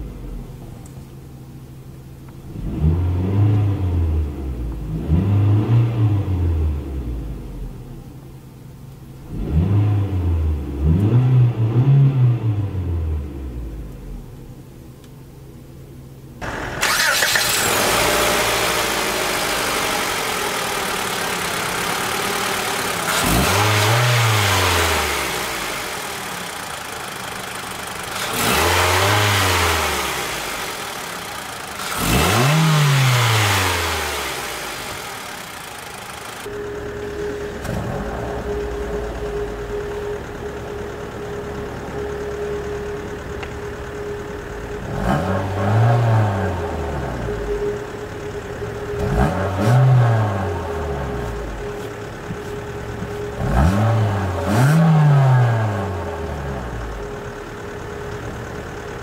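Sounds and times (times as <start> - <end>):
car engine revving and idling: 0.0 - 15.8, 16.4 - 59.0.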